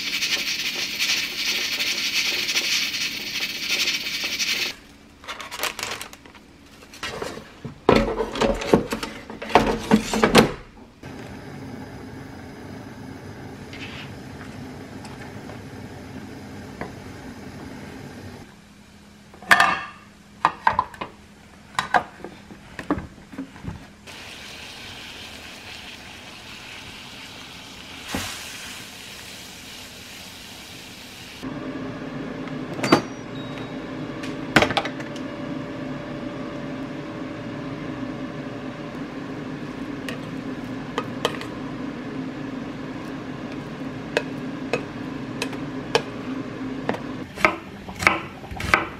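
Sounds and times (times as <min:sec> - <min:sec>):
water boiling: 0:00.0 - 0:04.8, 0:11.0 - 0:18.5, 0:24.1 - 0:31.5
steady hum: 0:11.0 - 0:28.1.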